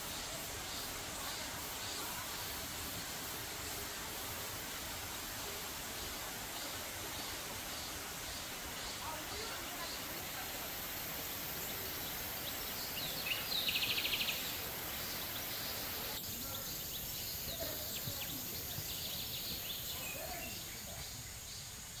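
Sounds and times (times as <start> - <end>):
creek rushing: 0.0 - 22.0
bird chirps: 11.6 - 21.7.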